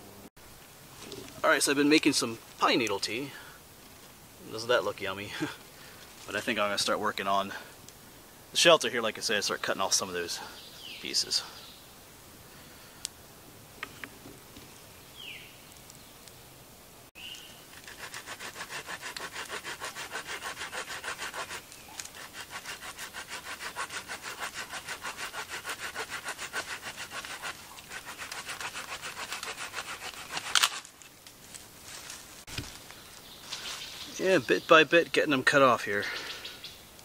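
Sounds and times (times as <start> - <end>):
bird chirp: 10.2 - 12.0, 14.6 - 16.6, 17.2 - 17.7, 32.8 - 35.4, 36.0 - 37.0
hand saw cutting branch: 17.7 - 30.9
branch cracking: 29.3 - 34.0.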